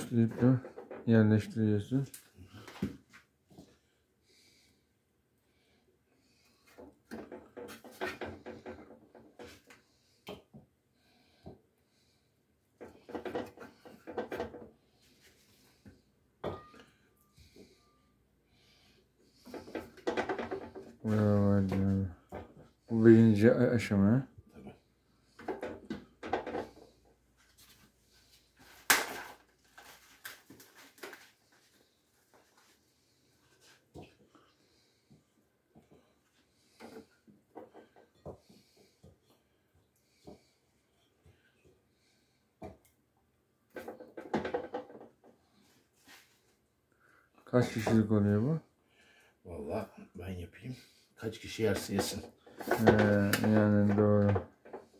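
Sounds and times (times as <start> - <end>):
kitchenware knocking: 16.4 - 16.8
kitchenware clattering: 16.4 - 17.0.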